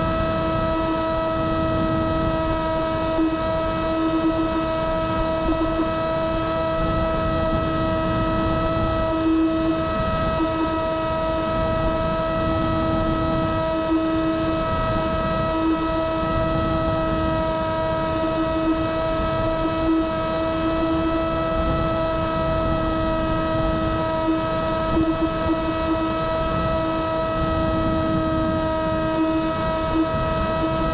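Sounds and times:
motor and propeller whining: 0:00.0 - 0:30.9
wind rushing over microphone: 0:00.0 - 0:30.9.

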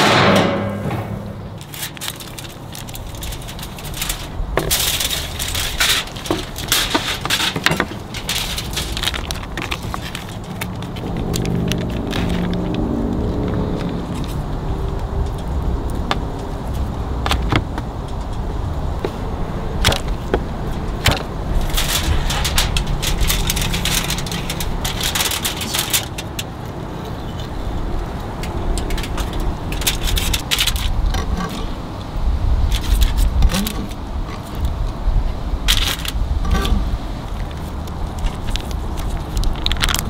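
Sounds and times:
steady low rumble: 0:00.0 - 0:07.2, 0:07.8 - 0:40.0
aluminium foil rustling: 0:01.4 - 0:31.7, 0:32.7 - 0:34.8, 0:35.6 - 0:40.0
plastic packaging crinkling: 0:01.6 - 0:12.8, 0:21.5 - 0:26.4, 0:28.7 - 0:31.0, 0:37.4 - 0:40.0.

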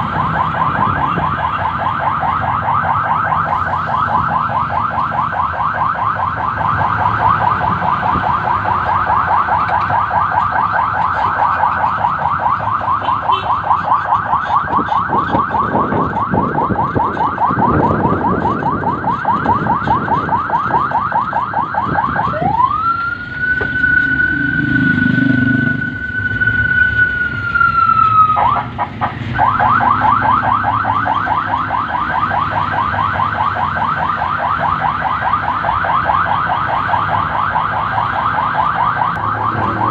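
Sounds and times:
electronic siren yelping: 0:00.0 - 0:39.9.

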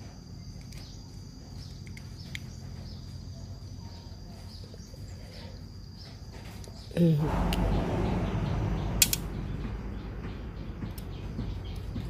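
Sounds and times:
low rumble: 0:07.0 - 0:12.0.

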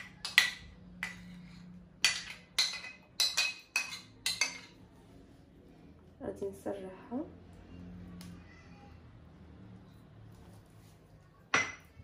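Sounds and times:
metal spoon clinking on ceramic dish: 0:00.0 - 0:04.8.

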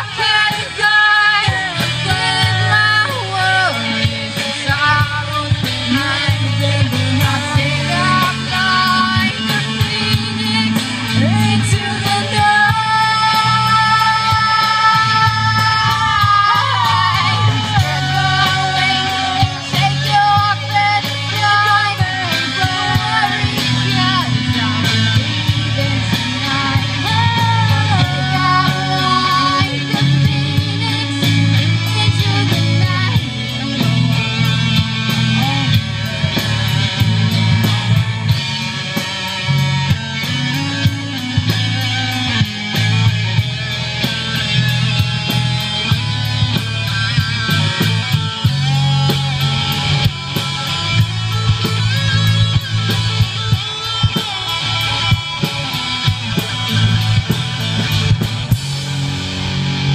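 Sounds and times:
person singing lead vocal: 0:00.0 - 0:36.6
rock band playing live: 0:00.0 - 0:59.9.

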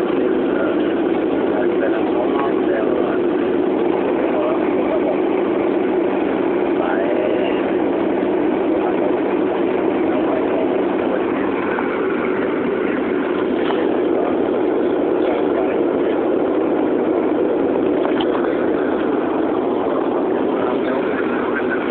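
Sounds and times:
airplane cabin engine drone: 0:00.0 - 0:21.9.

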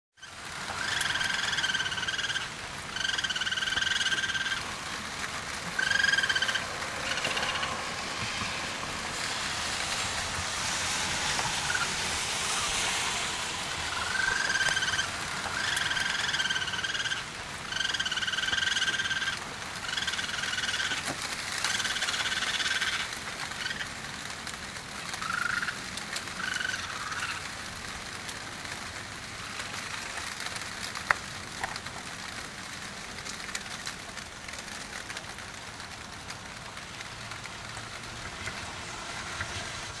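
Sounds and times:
raccoon high calls: 0:00.2 - 0:04.8, 0:05.7 - 0:07.8, 0:11.6 - 0:12.0, 0:13.8 - 0:23.9, 0:25.2 - 0:27.5
rain hissing: 0:00.2 - 0:40.0.

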